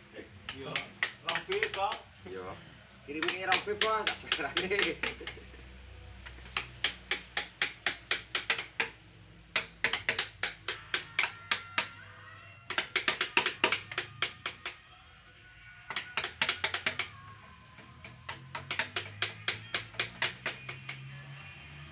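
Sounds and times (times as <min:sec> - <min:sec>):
mallet striking chisel into wood: 0:00.5 - 0:02.1, 0:03.1 - 0:05.4, 0:06.2 - 0:12.0, 0:12.6 - 0:14.8, 0:15.9 - 0:21.1.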